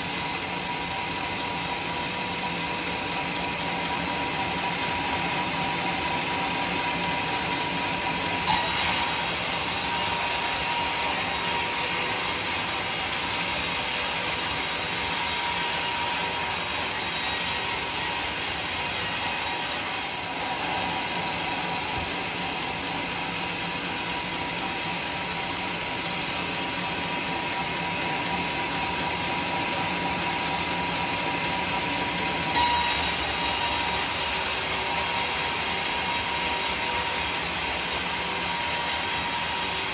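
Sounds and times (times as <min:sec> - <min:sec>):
sawmill whine: 0:00.0 - 0:39.9
band saw blade cutting wood: 0:08.4 - 0:22.3, 0:32.5 - 0:39.9.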